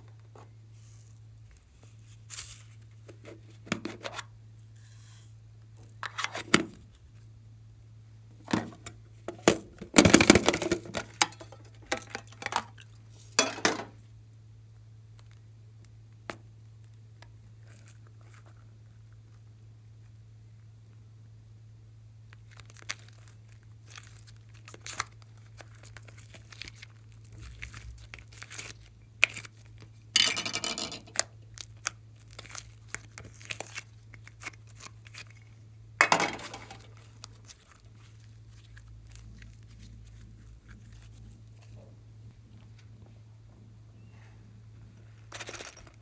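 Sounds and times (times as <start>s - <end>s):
slime crackling and popping: 22.3s - 30.1s, 31.1s - 35.6s, 36.6s - 41.8s.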